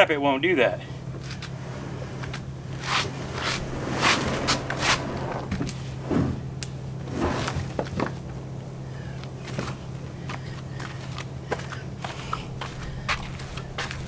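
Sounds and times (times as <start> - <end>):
steady low hum: 0.0 - 14.0
plastic kayak hull scraping: 1.2 - 8.2.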